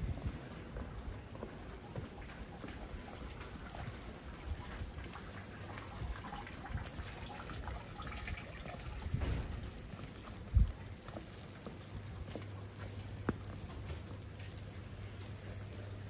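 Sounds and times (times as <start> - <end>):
light rain hiss: 0.0 - 16.0
small ticks and low bumps: 0.0 - 16.0
water trickling and dripping: 1.3 - 16.0.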